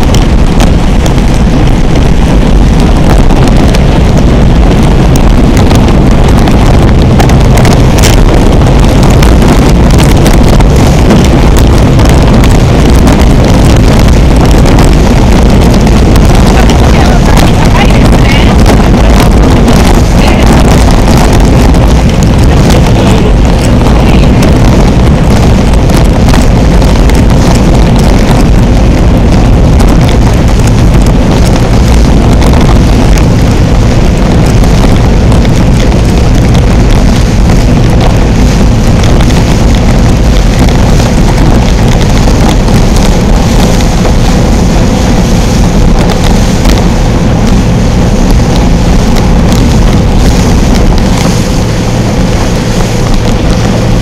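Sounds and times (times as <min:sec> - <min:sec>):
boat engine running: 0:00.0 - 0:54.0
wind rumbling on microphone: 0:00.0 - 0:54.0.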